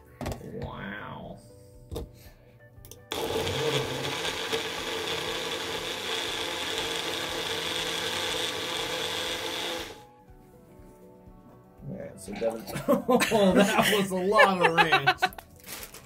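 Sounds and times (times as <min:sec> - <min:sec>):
blender motor running: 0:03.1 - 0:10.1.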